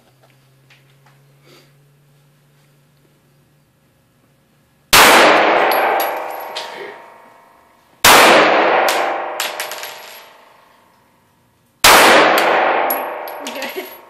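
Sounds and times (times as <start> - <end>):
pistol shots echoing: 5.0 - 7.1, 8.0 - 10.3, 11.8 - 13.5
brass casings tinkling: 5.6 - 7.4, 12.9 - 14.0.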